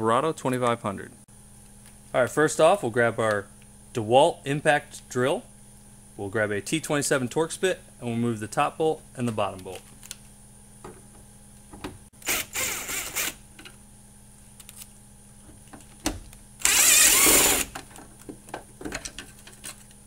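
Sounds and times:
impact drill running: 12.2s - 13.4s, 16.6s - 17.8s.

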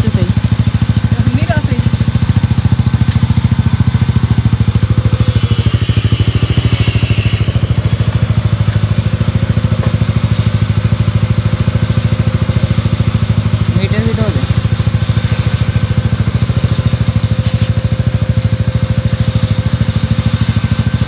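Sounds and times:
motorcycle engine idling: 0.0s - 21.0s
hiss: 5.1s - 7.6s.

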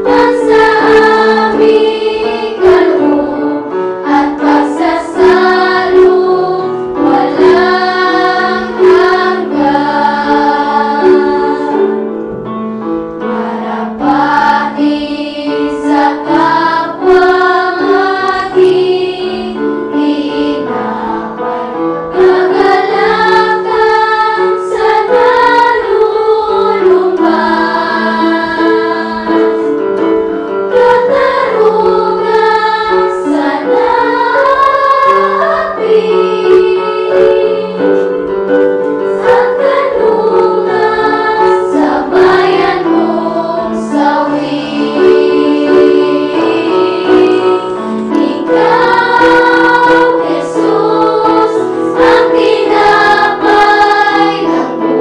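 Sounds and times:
choir singing a hymn: 0.0s - 55.0s.

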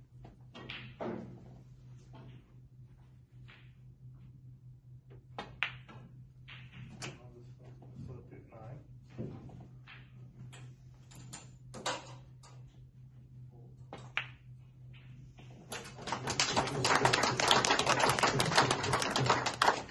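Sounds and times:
cue striking snooker ball: 5.4s - 6.9s
crowd applauding: 16.0s - 19.9s.

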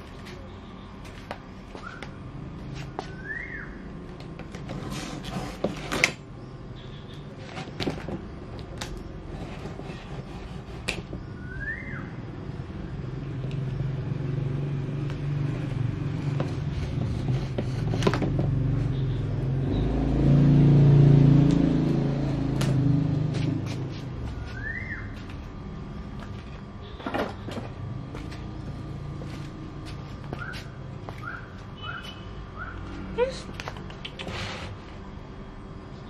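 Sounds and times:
vehicle engine rumble: 7.3s - 35.9s
bird chirps: 31.2s - 32.8s.

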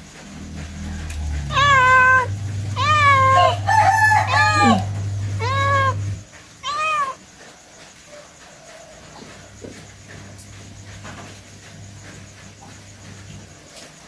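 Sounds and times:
steady low hum: 0.0s - 7.0s
cat meowing loudly: 1.5s - 7.2s.

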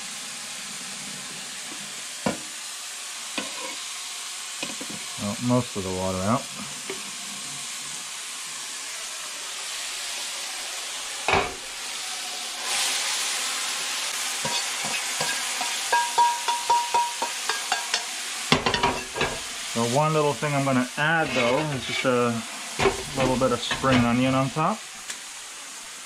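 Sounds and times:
food sizzling in a frying pan: 0.0s - 26.0s
utensil clinking against pan: 14.5s - 19.4s.

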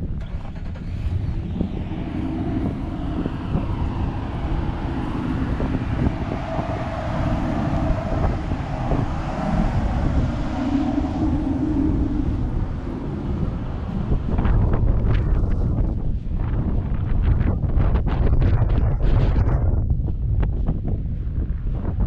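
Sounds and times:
vehicle engine hum: 0.0s - 17.4s
wind rumbling on microphone: 0.0s - 22.0s.

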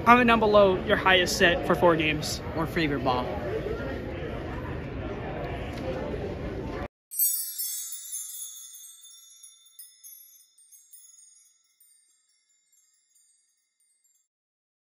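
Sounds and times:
chimes ringing: 7.1s - 14.3s.

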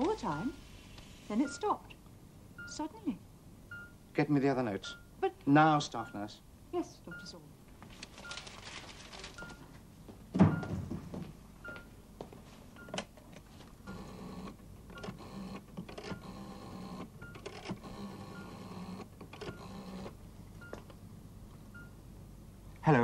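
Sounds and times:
patient monitor beeping: 0.0s - 0.6s, 1.3s - 1.9s, 2.6s - 3.0s, 3.7s - 4.0s, 4.8s - 6.4s, 7.1s - 7.4s, 8.2s - 8.6s, 9.3s - 9.8s, 10.5s - 10.8s, 11.6s - 12.0s, 12.8s - 13.1s, 13.9s - 20.9s, 21.7s - 22.0s
loud thump: 10.3s - 11.2s
rotary telephone dial whirring: 13.9s - 20.2s.

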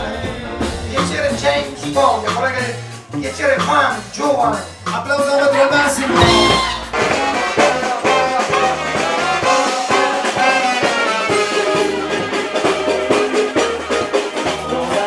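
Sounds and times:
piano: 0.0s - 3.2s, 4.0s - 15.0s
drums: 0.0s - 15.0s
horns: 5.7s - 14.3s.

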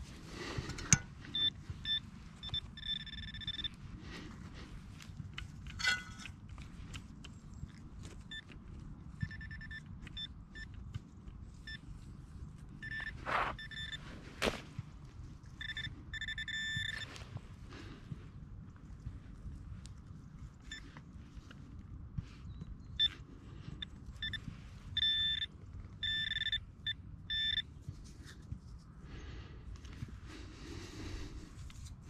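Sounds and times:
pinpointer beeping: 1.2s - 3.8s, 9.2s - 10.8s, 12.8s - 14.0s, 15.6s - 17.1s, 23.8s - 27.7s
soil scraping: 12.9s - 14.8s.

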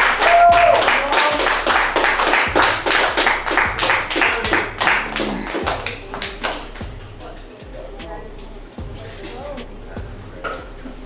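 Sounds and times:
fast clap-like beat: 0.0s - 7.0s
steady bass: 0.0s - 11.0s.

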